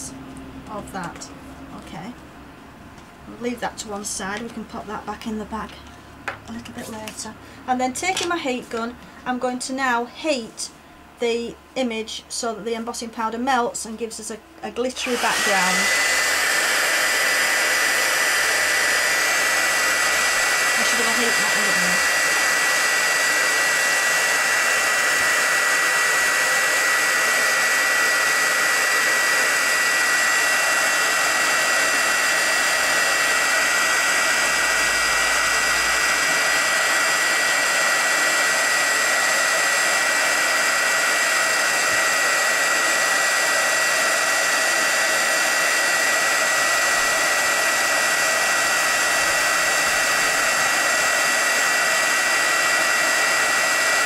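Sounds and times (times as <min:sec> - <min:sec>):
heat gun blowing with whine: 0:14.8 - 0:54.0.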